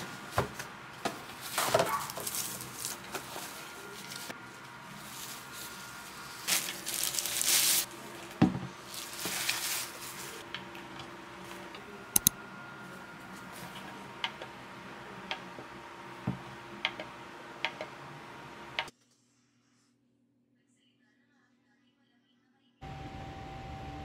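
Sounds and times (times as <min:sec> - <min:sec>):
packaging rustling: 0:01.0 - 0:10.4.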